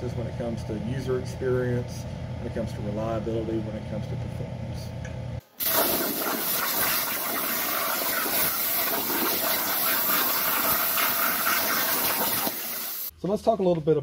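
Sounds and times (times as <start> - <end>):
plasma torch hissing: 5.6 - 13.1.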